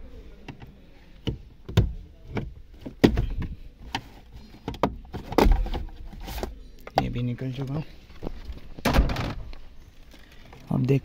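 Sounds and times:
hard plastic clicking and knocking: 0:00.5 - 0:05.9.

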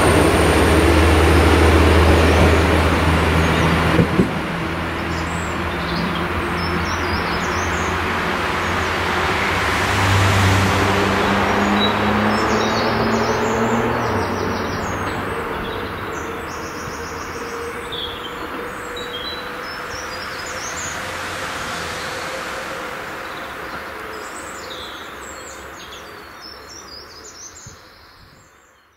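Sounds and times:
diesel train running: 0:00.0 - 0:25.8
birds chirping: 0:10.8 - 0:28.9.

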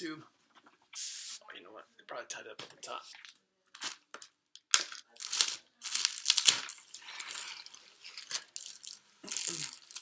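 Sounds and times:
plastic wrapping crinkling: 0:05.0 - 0:10.0.

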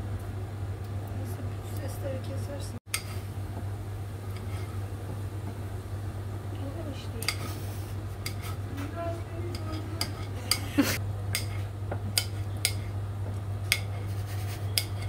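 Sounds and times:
knife tapping and scraping on plate: 0:07.2 - 0:07.6, 0:08.2 - 0:08.9, 0:09.5 - 0:15.0.

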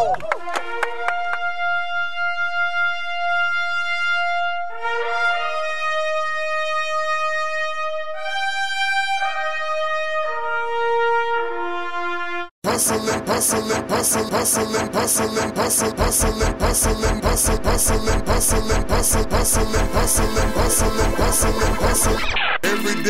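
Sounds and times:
brass fanfare with trumpets: 0:00.4 - 0:13.8.

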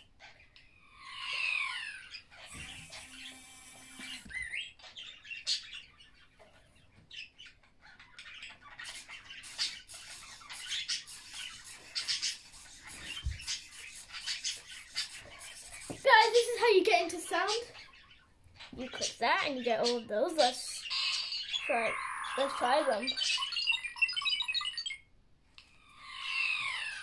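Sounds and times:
toy motor whirring: 0:02.5 - 0:04.6
chirpy electronic sound: 0:20.9 - 0:24.8.

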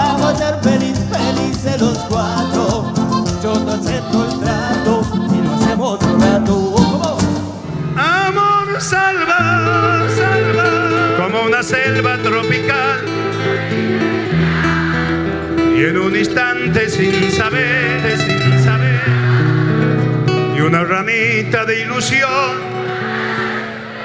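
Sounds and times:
accordion: 0:00.0 - 0:07.9, 0:09.4 - 0:24.0
person singing: 0:00.0 - 0:19.8, 0:20.5 - 0:24.0
electric guitar: 0:00.0 - 0:24.0
steady bass: 0:10.2 - 0:20.9.

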